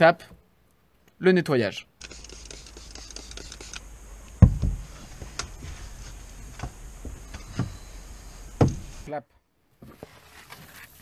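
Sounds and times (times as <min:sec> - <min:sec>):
spray bottle hiss: 0:02.0 - 0:09.1
loud knock: 0:04.4 - 0:04.8.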